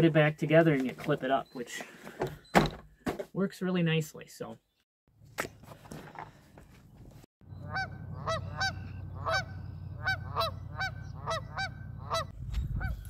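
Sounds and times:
geese honking: 0:07.5 - 0:13.0.

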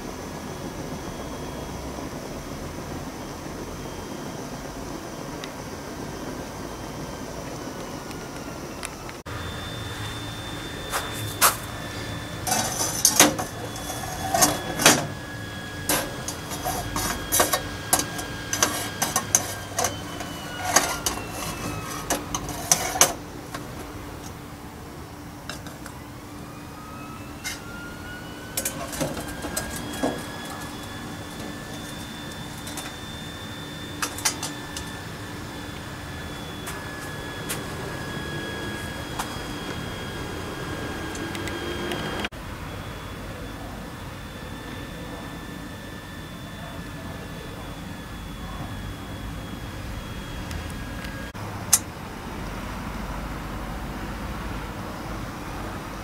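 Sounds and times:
steady hum with gliding whines: 0:00.0 - 0:56.0.

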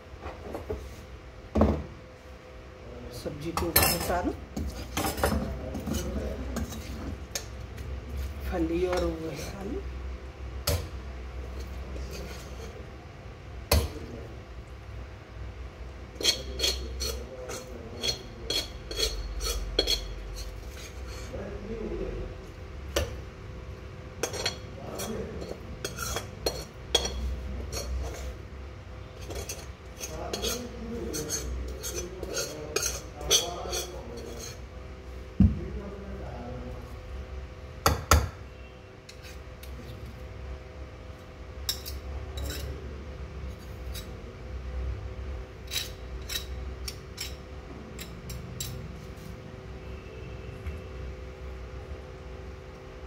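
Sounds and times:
steady low hum: 0:00.0 - 0:53.0
metal spoon scraping steel pan: 0:11.5 - 0:12.8, 0:16.2 - 0:21.4, 0:24.2 - 0:28.4, 0:29.1 - 0:34.6, 0:39.1 - 0:39.8, 0:41.7 - 0:42.8, 0:45.6 - 0:47.4.

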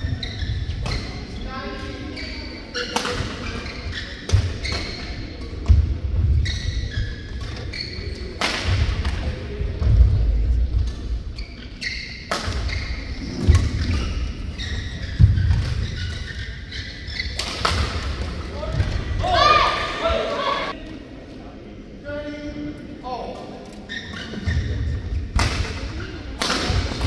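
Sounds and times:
shoes squeaking on court: 0:00.0 - 0:08.4, 0:10.8 - 0:19.0, 0:23.8 - 0:25.2.

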